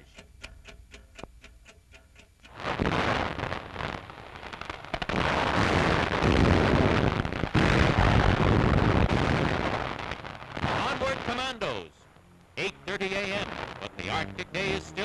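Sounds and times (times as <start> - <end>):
dense gunfire: 5.0 - 11.4.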